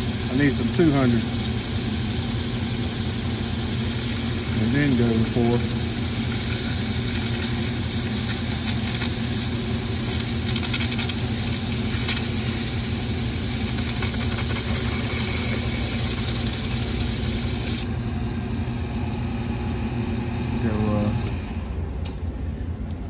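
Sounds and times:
metal lathe running: 0.0 - 17.8
sandpaper rubbing metal: 13.4 - 17.8.

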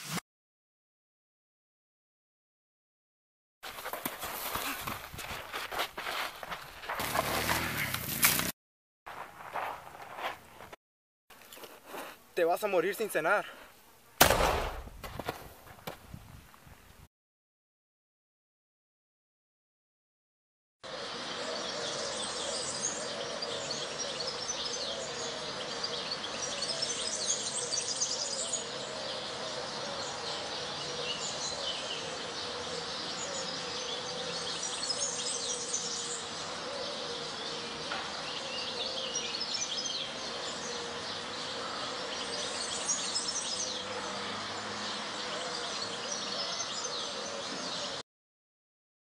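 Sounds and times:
birds chirping and twittering: 20.9 - 48.0.

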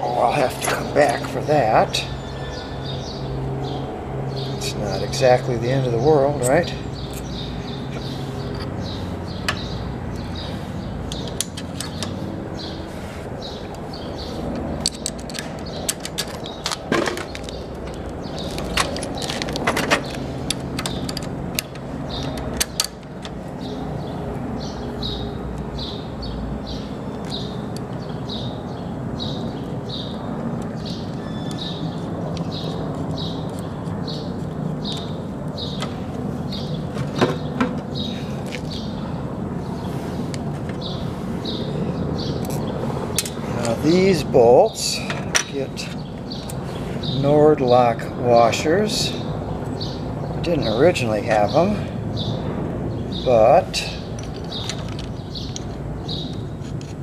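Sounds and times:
metal parts clinking: 14.8 - 23.4, 53.8 - 57.0.

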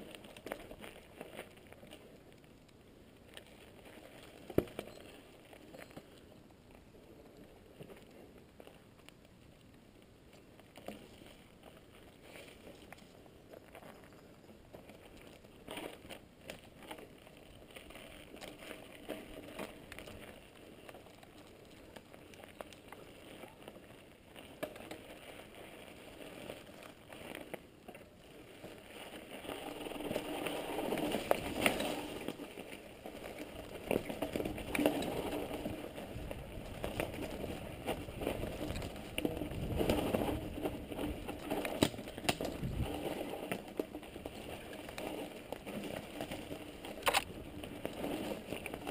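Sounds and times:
bike tyres on dirt and gravel: 0.0 - 48.9
clicks and knocks over bumps: 10.3 - 48.9
bike rattling: 10.8 - 48.9.

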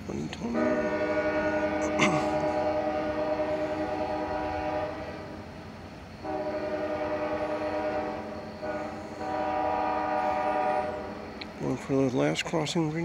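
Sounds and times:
locomotive air horn blasts: 0.4 - 5.4, 6.2 - 11.3.

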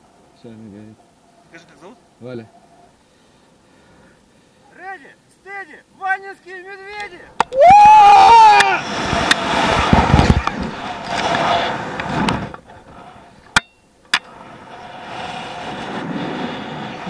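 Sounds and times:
wind buffeting microphone: 7.2 - 13.5.

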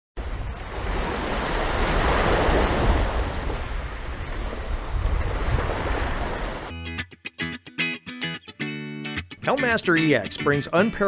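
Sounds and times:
ocean waves: 0.2 - 6.7
wind: 0.2 - 6.7.

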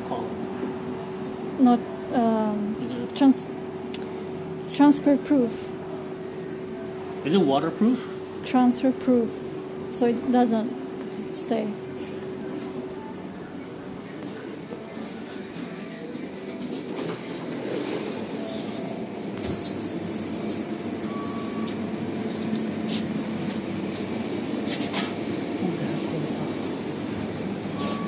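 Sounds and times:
high-pitched whine: 8.4 - 28.0
short beep: 27.7 - 28.0.

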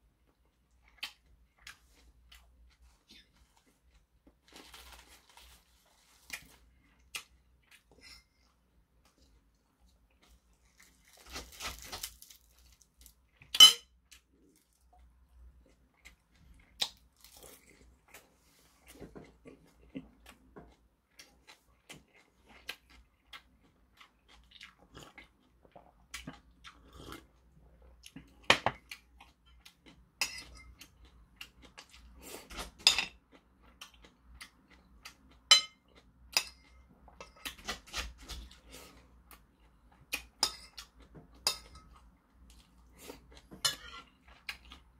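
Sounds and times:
chewing and crunching: 9.0 - 44.9
metal spoon clinking on bowls: 13.6 - 13.9, 30.2 - 30.7, 35.5 - 35.8, 41.4 - 41.9.

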